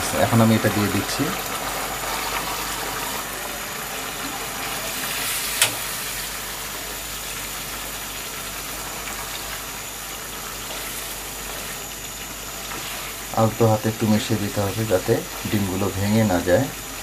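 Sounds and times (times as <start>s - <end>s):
stove hiss: 0.0s - 17.0s
spatula stirring thick curry: 12.6s - 13.3s.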